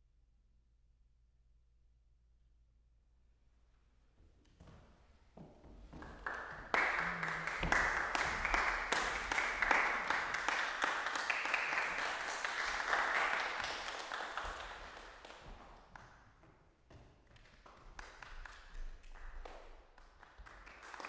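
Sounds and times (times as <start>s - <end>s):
audience applauding: 5.9s - 15.9s, 17.9s - 21.0s.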